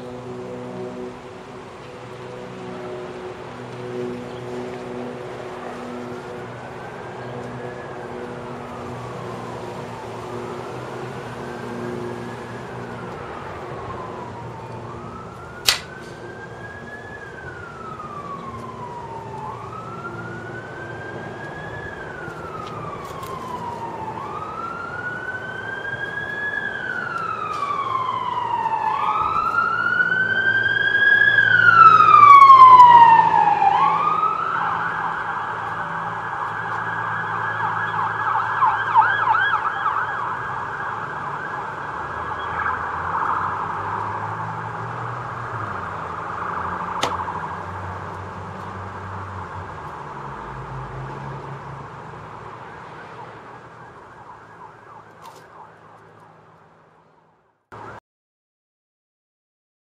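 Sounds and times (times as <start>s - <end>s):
emergency vehicle siren: 0.0s - 58.0s
sharp click: 15.6s - 16.2s.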